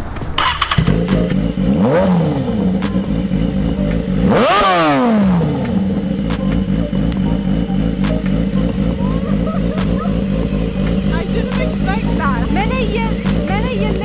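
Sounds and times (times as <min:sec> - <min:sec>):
sportbike engine revving and idling: 0:00.4 - 0:14.0.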